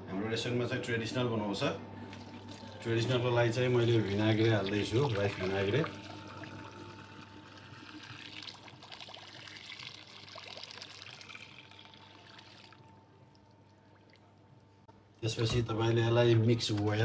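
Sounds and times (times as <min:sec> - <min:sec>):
vinegar pouring in a stream: 0:03.8 - 0:12.8.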